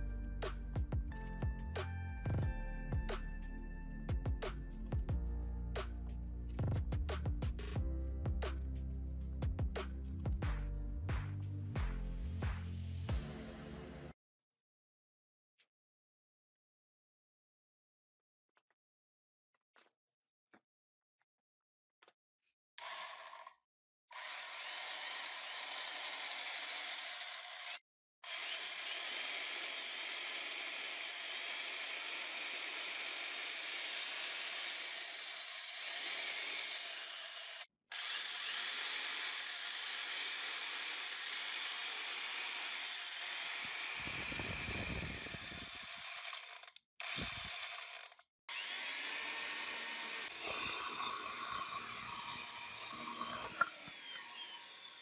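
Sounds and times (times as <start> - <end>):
chainsaw cutting wood: 22.8 - 55.0
electric chainsaw whirring: 22.8 - 55.0.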